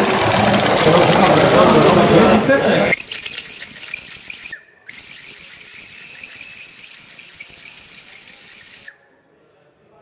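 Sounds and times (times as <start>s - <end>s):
model locomotive venting steam: 0.0s - 6.0s.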